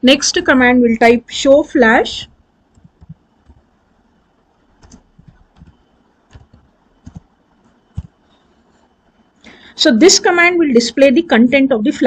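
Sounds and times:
computer keyboard keystrokes: 2.8 - 3.6, 4.8 - 7.3.

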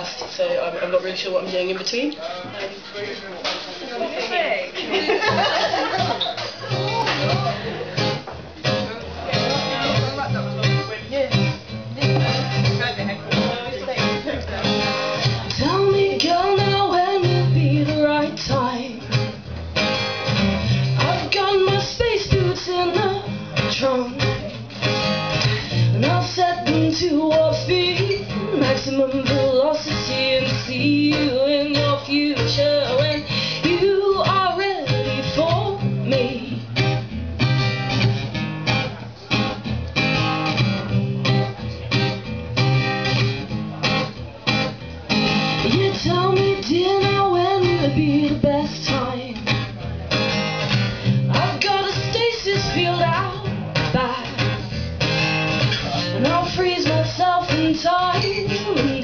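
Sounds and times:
acoustic guitar strumming: 6.0 - 59.0
woman singing: 15.5 - 19.2, 21.0 - 24.6, 25.5 - 36.7, 45.4 - 49.6, 51.3 - 54.7, 56.2 - 59.0.

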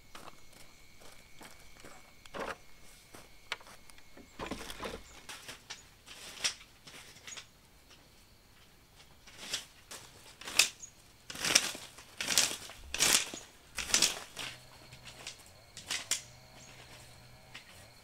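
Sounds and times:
footsteps on dry leaves: 5.0 - 7.2, 9.3 - 18.0.

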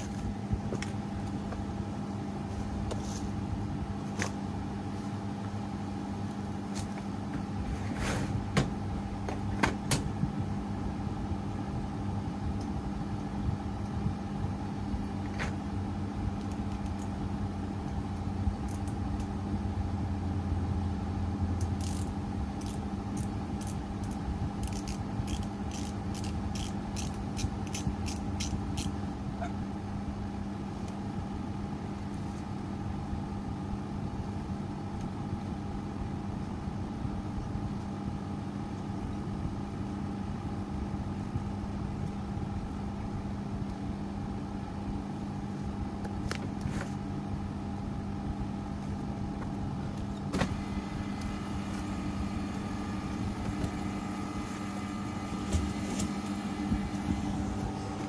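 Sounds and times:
air conditioner compressor hum: 0.0 - 58.0.

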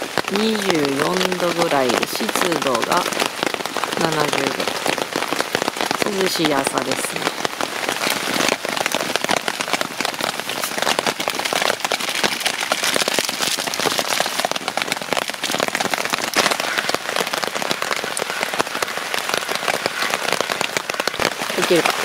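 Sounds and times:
heavy rain on a tarp and gravel: 0.0 - 22.0.

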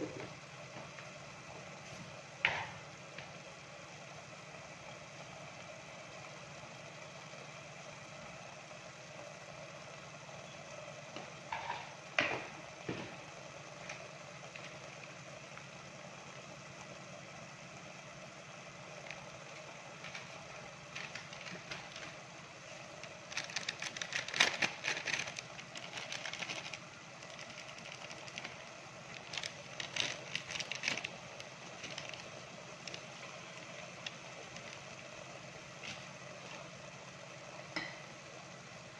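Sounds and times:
steady mechanical hum: 0.0 - 38.9.

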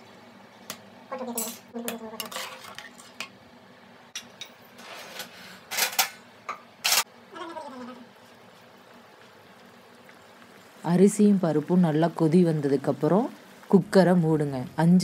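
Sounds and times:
metal spatula scraping pot: 1.4 - 3.2, 4.7 - 6.0.

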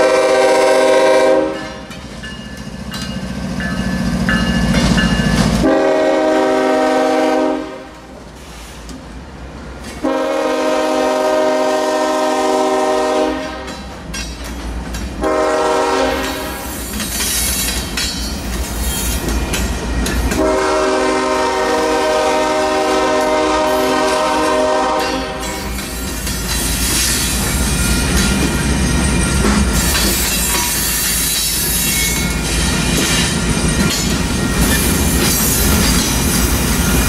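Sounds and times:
locomotive air horn blasts: 0.0 - 1.8, 5.6 - 8.1, 10.0 - 13.7, 15.2 - 16.7, 20.4 - 25.7
freight train rumbling by: 0.0 - 37.0
wheels clacking over rail joints: 13.4 - 15.4, 16.1 - 20.6, 24.5 - 37.0.

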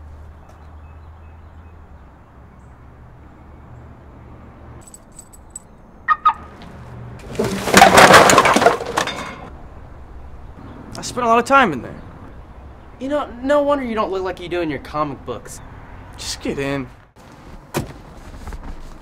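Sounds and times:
trash clattering and rustling: 6.6 - 9.5.

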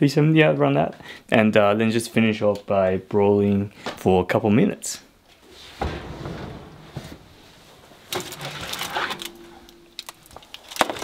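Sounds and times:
baking tray scraping on rack: 8.2 - 9.5.

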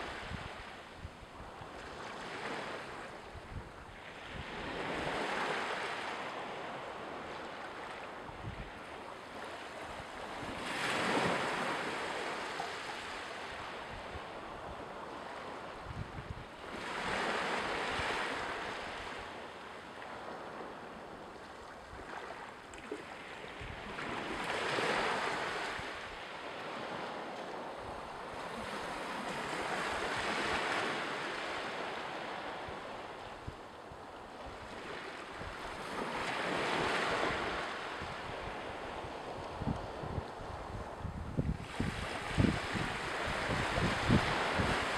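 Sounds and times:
wind rumble on microphone: 0.0 - 19.4, 23.5 - 44.9
sea waves washing onto shore: 41.6 - 44.9.

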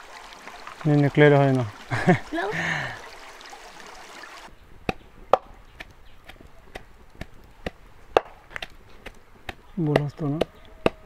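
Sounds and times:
stream water running: 0.0 - 4.5.

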